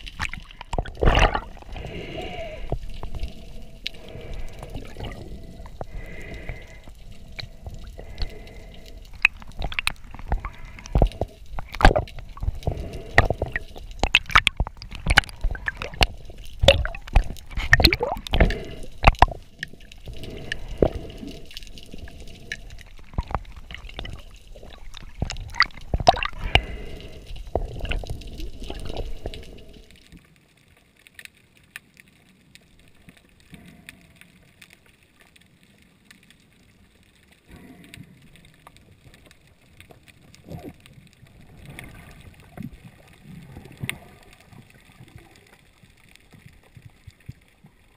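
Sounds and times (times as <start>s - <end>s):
low underwater rumble: 0.0s - 29.9s
gear clicks and knocks underwater: 0.0s - 47.9s.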